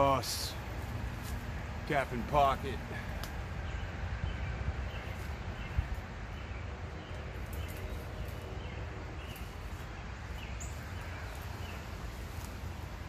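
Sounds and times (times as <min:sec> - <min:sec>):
small birds chirping: 0:00.0 - 0:13.0
wind rumble on microphone: 0:02.9 - 0:13.0.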